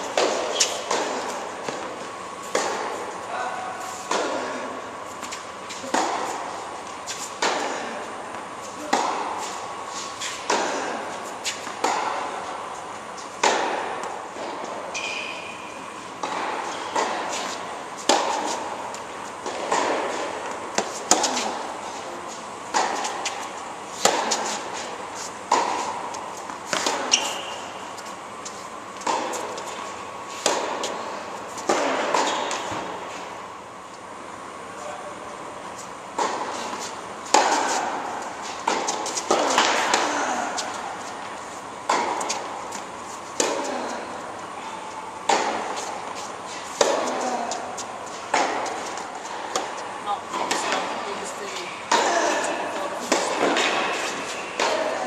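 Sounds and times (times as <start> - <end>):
tennis ball struck by racket: 4.1 - 4.6, 5.2 - 6.5, 8.4 - 9.6, 10.2 - 12.4, 13.4 - 21.8, 22.7 - 28.1, 29.0 - 29.8, 30.4 - 33.1, 36.1 - 44.0, 45.2 - 51.0, 51.9 - 55.0
short high squeaks: 14.9 - 15.6, 27.0 - 27.7.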